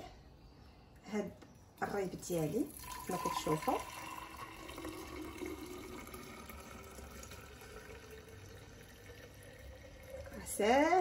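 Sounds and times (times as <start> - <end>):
milk pouring into a jug: 2.3 - 11.0.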